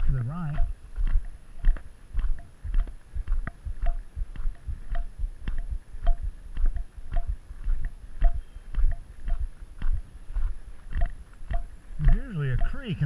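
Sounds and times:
footsteps on gravel: 0:00.0 - 0:13.0.

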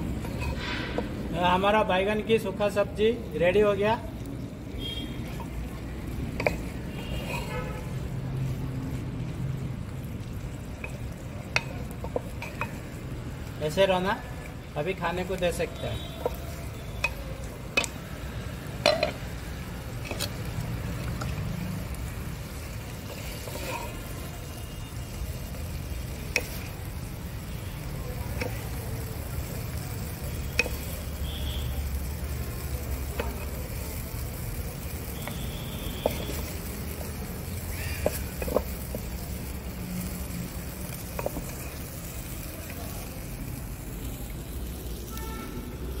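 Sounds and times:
wooden spatula scraping clay pot: 0:00.1 - 0:01.2, 0:06.3 - 0:08.6, 0:23.0 - 0:24.2, 0:36.0 - 0:39.2.

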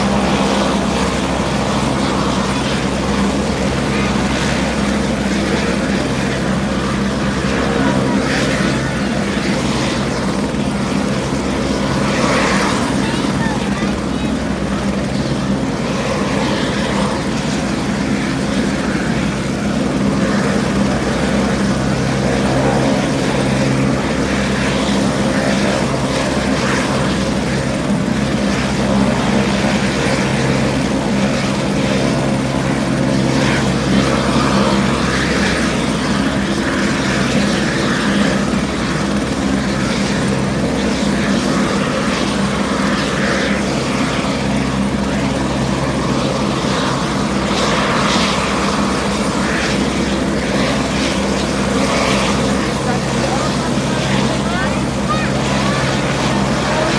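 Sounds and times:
helicopter turbine drone: 0:00.0 - 0:56.9
rotor blades beating: 0:00.0 - 0:56.9.

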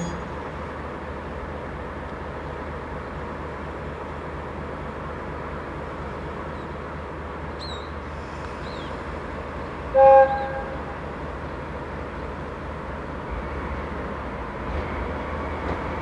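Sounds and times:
train horn two-tone blast: 0:09.9 - 0:11.0.

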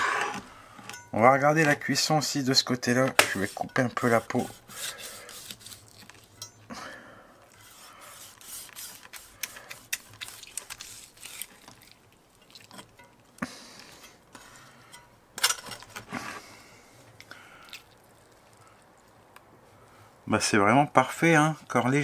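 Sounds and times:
knife cutting through crackling: 0:03.0 - 0:06.4, 0:07.6 - 0:12.9
blade scraping and clicking: 0:07.5 - 0:12.0.

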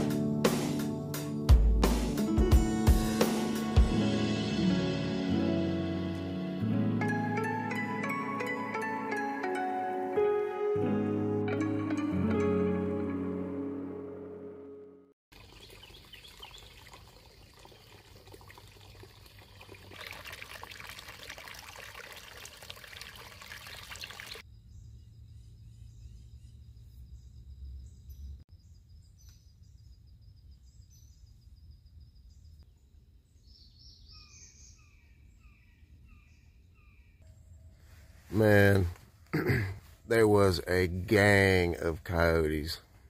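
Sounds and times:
birds chirping: 0:15.4 - 0:20.2, 0:23.2 - 0:43.0.

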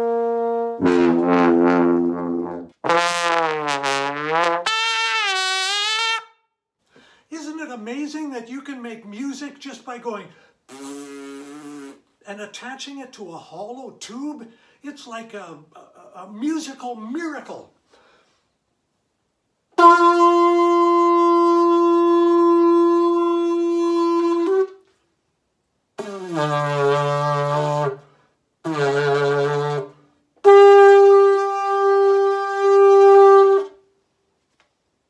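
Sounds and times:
lip-buzzed tube horn notes: 0:00.0 - 0:06.3, 0:10.7 - 0:12.0, 0:19.8 - 0:24.7, 0:26.0 - 0:28.0, 0:28.6 - 0:33.8.

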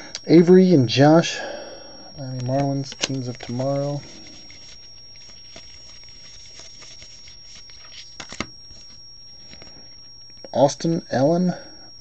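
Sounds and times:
cards rustling against each other: 0:02.2 - 0:10.2.

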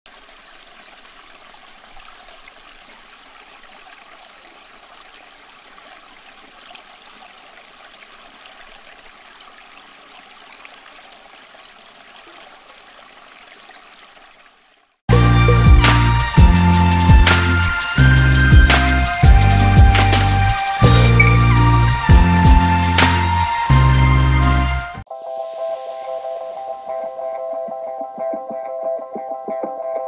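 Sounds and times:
fountain water trickling: 0:00.1 - 0:15.0.

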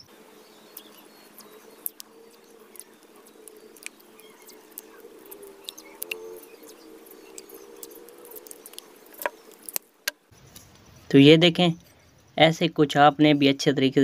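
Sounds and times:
tape crackling and clicking: 0:00.7 - 0:10.2.

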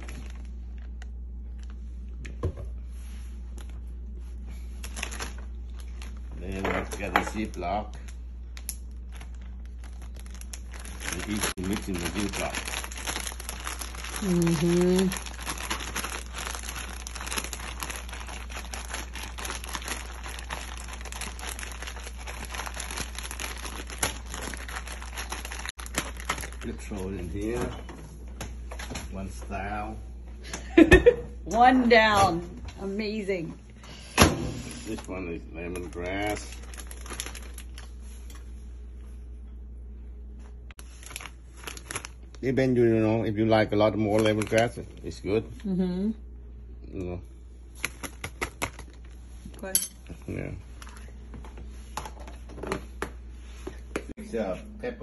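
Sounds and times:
plastic bag crinkling: 0:00.0 - 0:01.8, 0:04.7 - 0:27.6, 0:34.9 - 0:38.4, 0:40.8 - 0:45.2, 0:47.7 - 0:49.3
steady low hum: 0:00.0 - 0:55.0.

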